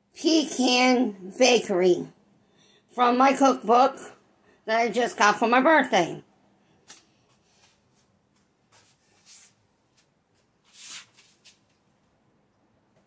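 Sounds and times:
faint rustling and brushing: 7.3 - 12.1.

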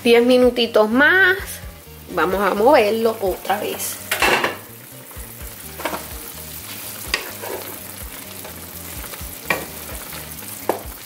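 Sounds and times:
sauce bubbling and sizzling: 1.0 - 11.0
wooden spoon knocking on pan: 9.4 - 9.9, 10.6 - 11.0.

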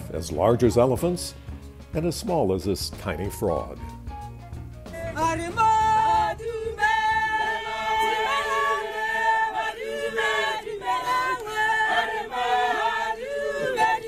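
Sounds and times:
group singing together: 4.9 - 14.0.

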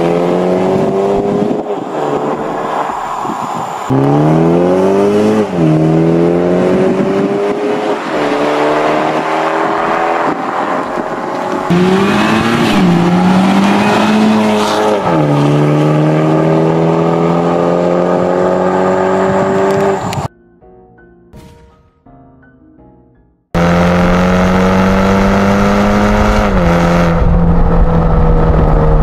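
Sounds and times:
car engine accelerating through gears: 0.0 - 3.3, 3.9 - 20.3, 23.6 - 29.0.

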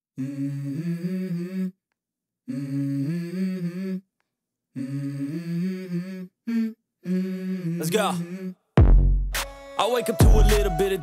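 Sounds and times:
person humming melody: 0.2 - 1.8, 2.5 - 4.1, 4.8 - 8.7.

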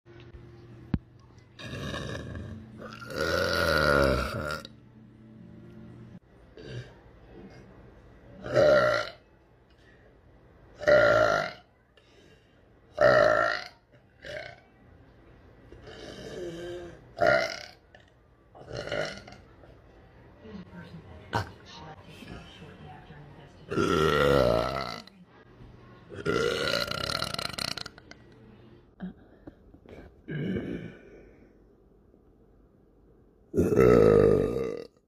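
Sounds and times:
woman burping loudly: 1.6 - 4.7, 6.6 - 7.0, 8.4 - 9.2, 10.8 - 11.7, 13.0 - 14.6, 15.8 - 18.0, 18.6 - 19.5, 23.7 - 25.1, 26.1 - 28.1, 30.3 - 31.0, 33.6 - 35.0.

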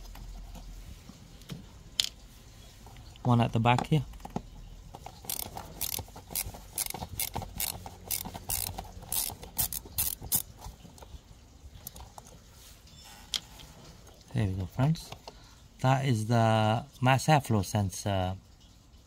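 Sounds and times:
hand ratchet clicking: 5.1 - 10.5.

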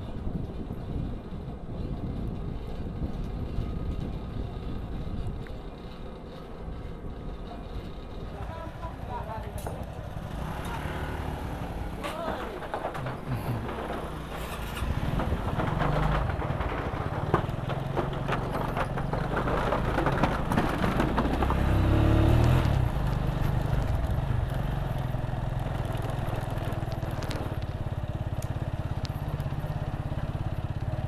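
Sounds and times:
small engine putter: 8.8 - 31.0
clattering knocks: 11.8 - 21.8.

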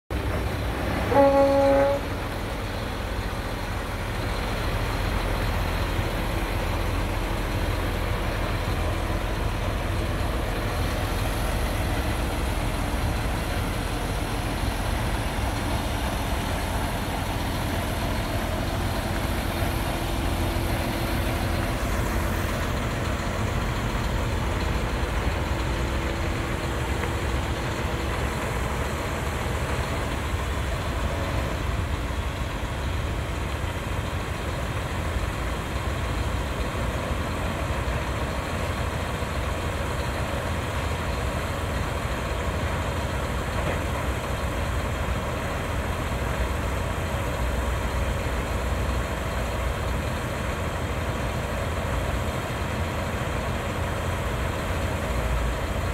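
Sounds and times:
truck diesel engine idling: 0.1 - 55.9.

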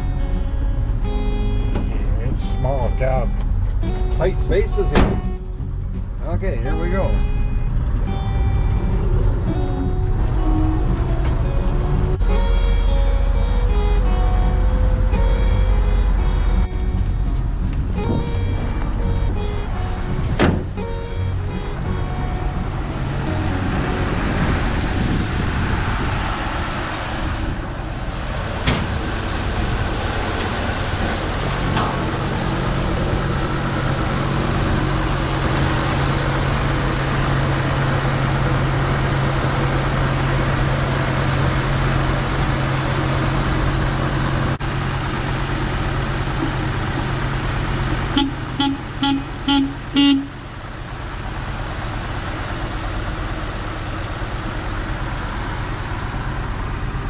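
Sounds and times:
truck engine idling: 0.0 - 57.0
truck horn honks: 48.1 - 50.4.

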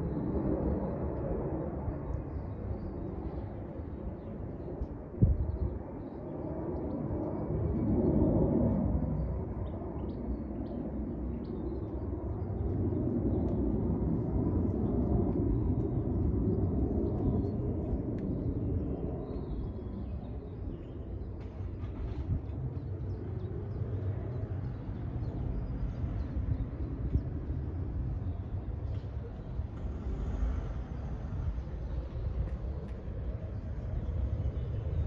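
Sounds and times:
low outdoor rumble: 11.8 - 35.0.

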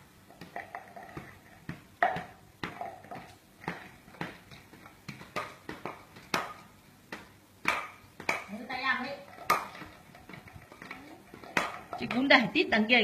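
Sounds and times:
toys knocking on floor mat: 0.4 - 8.5.

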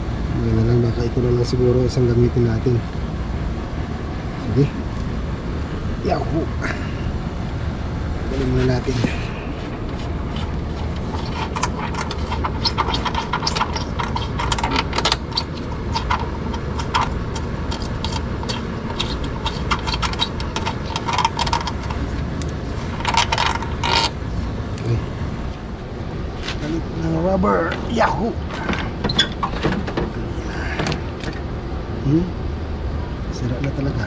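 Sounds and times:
steady low hum: 0.0 - 34.0
metal clinks and scrapes: 8.9 - 25.0.

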